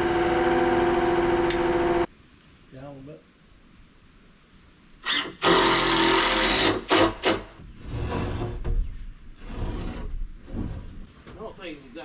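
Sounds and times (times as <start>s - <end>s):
power tool running: 0.0s - 2.1s, 5.0s - 7.1s.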